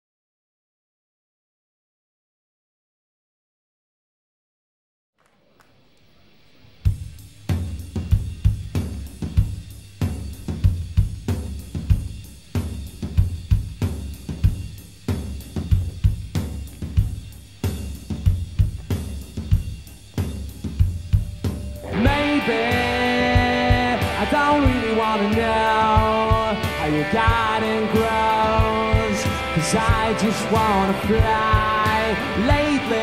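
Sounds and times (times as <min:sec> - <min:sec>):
rock drum kit playing: 0:06.8 - 0:33.0.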